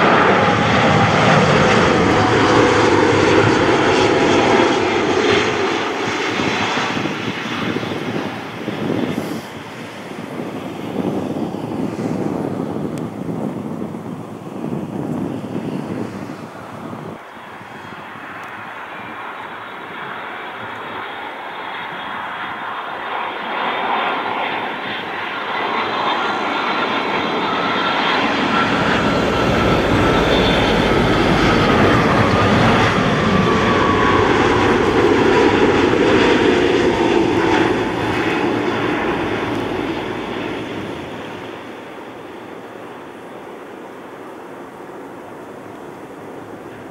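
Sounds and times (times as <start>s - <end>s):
jet airliner passing overhead: 0.0s - 46.9s.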